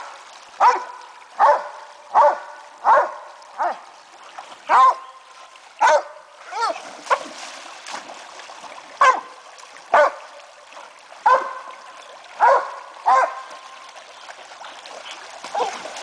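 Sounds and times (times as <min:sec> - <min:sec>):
creek trickling: 0:00.0 - 0:16.0
dog barking: 0:00.6 - 0:03.8, 0:04.7 - 0:05.0, 0:05.8 - 0:06.2, 0:09.0 - 0:09.3, 0:09.9 - 0:10.2, 0:11.2 - 0:11.7, 0:12.4 - 0:13.5.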